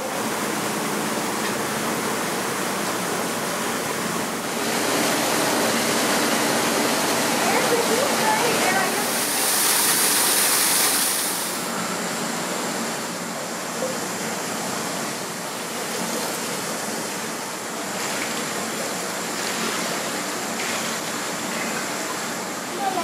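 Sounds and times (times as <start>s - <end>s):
waterfall splashing into pool: 4.4s - 11.7s, 15.5s - 23.0s.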